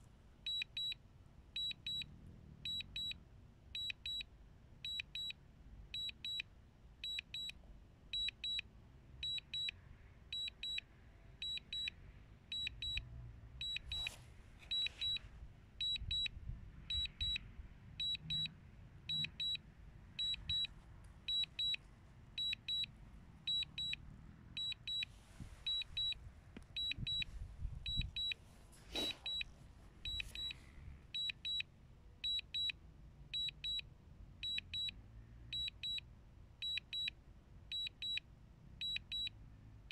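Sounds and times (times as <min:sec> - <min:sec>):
high double beep alert: 0:13.6 - 0:15.2, 0:15.8 - 0:16.3, 0:16.9 - 0:17.4, 0:19.1 - 0:19.6, 0:20.2 - 0:20.7, 0:21.3 - 0:21.8, 0:22.4 - 0:22.9, 0:23.5 - 0:24.0, 0:24.6 - 0:25.1, 0:25.7 - 0:26.2, 0:26.8 - 0:30.6
wind buffeting microphone: 0:25.4 - 0:28.3.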